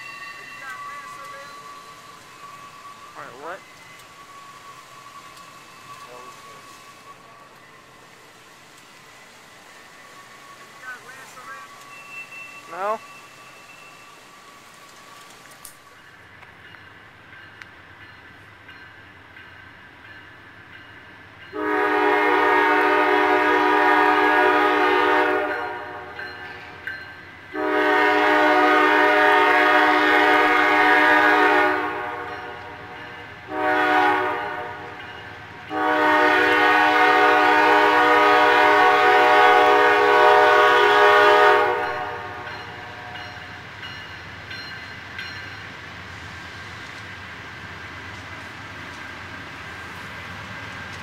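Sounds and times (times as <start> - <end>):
low train rumble: 0.0 - 51.0
locomotive horn blasts: 21.6 - 26.2, 27.5 - 32.8, 33.5 - 35.0, 35.7 - 43.2.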